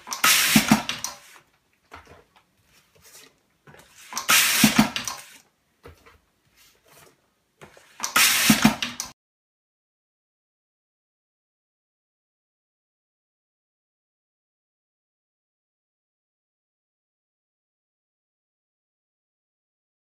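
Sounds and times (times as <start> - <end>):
pneumatic machine hissing: 0.0 - 1.2, 4.1 - 5.3, 8.0 - 9.0.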